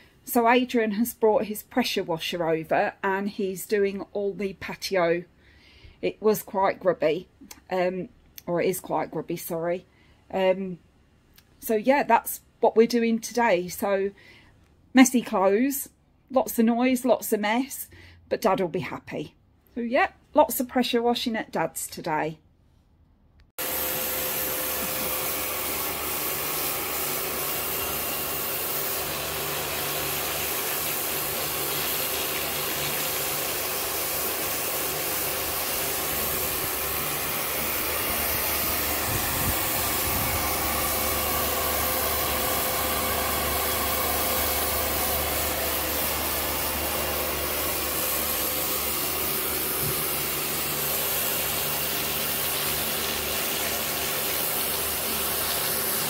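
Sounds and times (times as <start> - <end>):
high-pressure water jet hissing: 23.6 - 56.0
pressure washer pump humming: 23.6 - 56.0.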